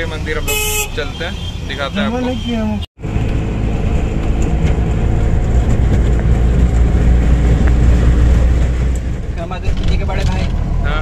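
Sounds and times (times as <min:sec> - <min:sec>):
road noise: 0:00.0 - 0:11.0
auto-rickshaw engine droning: 0:03.0 - 0:11.0.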